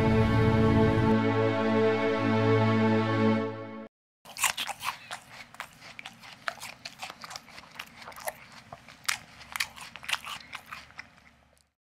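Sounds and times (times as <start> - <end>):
cat crunching hard food: 4.3 - 11.7.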